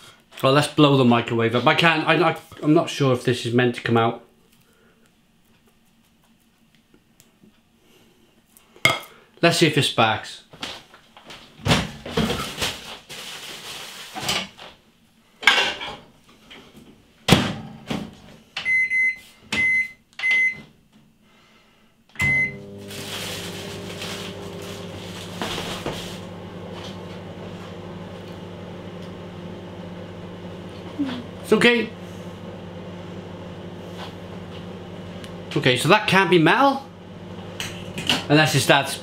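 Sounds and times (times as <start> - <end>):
microwave keypad beeps: 18.7 - 20.6, 22.2 - 22.6
microwave oven humming: 22.1 - 39.0.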